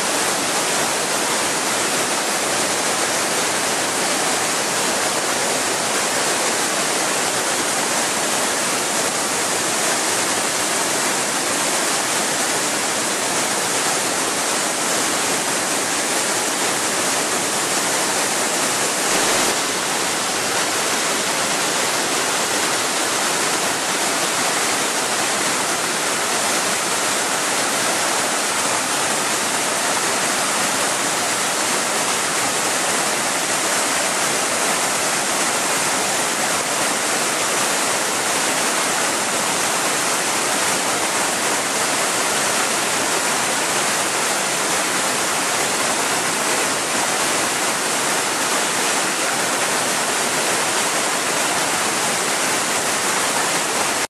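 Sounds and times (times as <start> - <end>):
stream rushing over boulders: 0.0 - 54.0.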